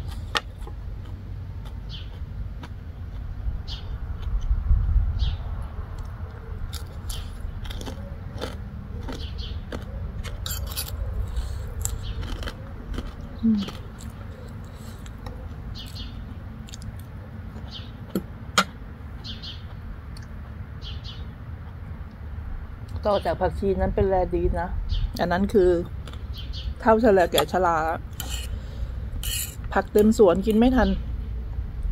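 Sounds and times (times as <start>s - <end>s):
chewing and crunching: 0.0s - 4.6s, 5.9s - 18.2s, 25.8s - 26.8s
steady low rumble: 0.0s - 31.9s.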